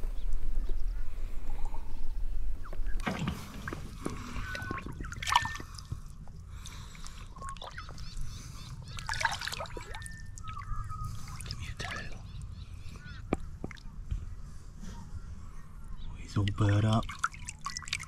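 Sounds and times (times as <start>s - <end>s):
fish splashing: 3.0s - 8.2s, 8.8s - 12.4s, 16.5s - 18.0s
water trickling: 8.8s - 12.4s, 16.3s - 18.0s.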